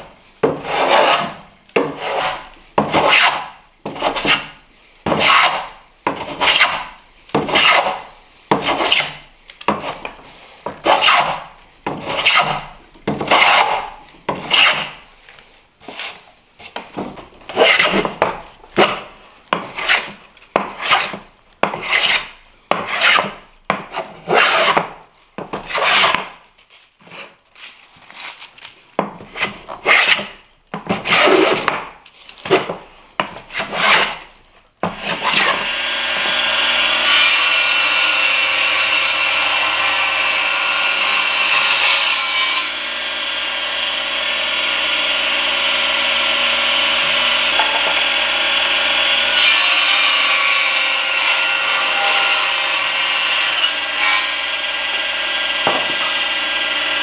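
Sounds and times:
hand plane shaving wood: 0.4 - 15.0, 18.8 - 24.9, 25.5 - 26.3, 29.2 - 31.8, 32.4 - 34.3, 34.9 - 36.4
saw blade cutting board: 0.4 - 15.0, 17.5 - 24.9, 25.6 - 26.3, 29.2 - 31.8, 33.4 - 57.0
table saw running: 35.4 - 57.0.

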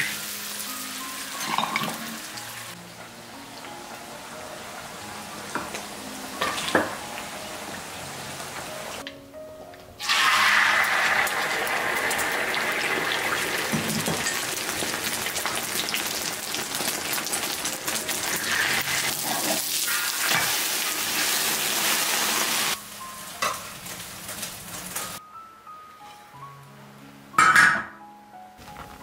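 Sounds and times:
soft background music: 0.0 - 29.0
egg sizzling in hot oil: 10.0 - 25.2.

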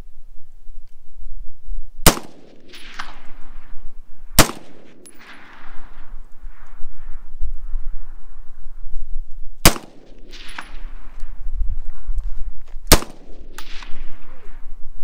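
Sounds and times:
rifle shots with echo: 2.0 - 6.6, 9.6 - 11.2, 12.9 - 14.6.

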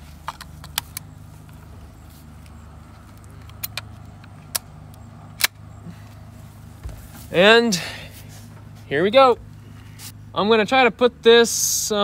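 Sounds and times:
steady low hum: 0.0 - 12.0
air rifle metallic clicks: 0.2 - 1.6, 2.4 - 5.7.

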